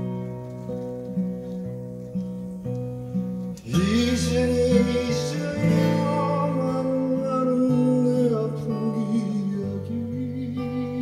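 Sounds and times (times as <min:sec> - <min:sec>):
acoustic guitar strumming: 0:00.0 - 0:11.0
man singing: 0:03.6 - 0:11.0.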